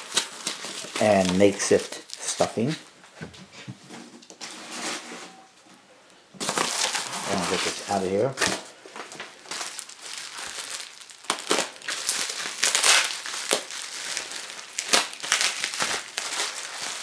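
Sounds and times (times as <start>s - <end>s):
packing stuffing crinkling: 0.0s - 2.9s, 6.4s - 17.0s.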